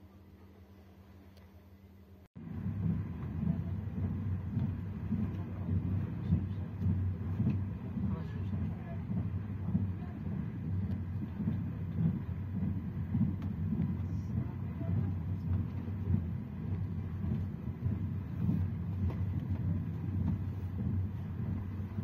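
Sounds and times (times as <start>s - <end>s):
train wheels rumbling on track: 2.4s - 22.0s.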